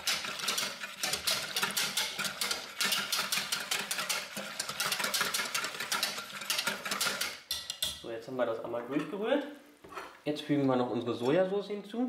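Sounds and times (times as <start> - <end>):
whisk clattering against bowl: 0.0 - 8.1.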